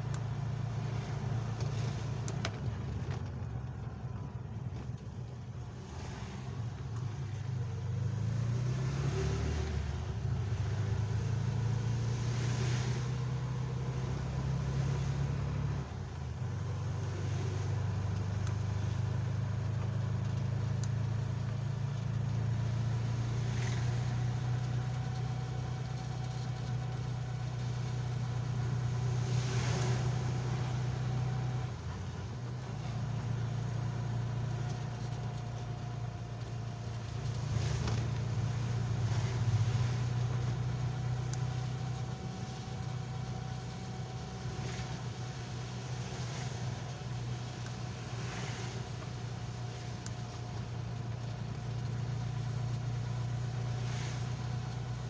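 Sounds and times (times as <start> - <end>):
vehicle engine droning: 0.0 - 55.0
tyre hiss on wet road: 37.1 - 55.0.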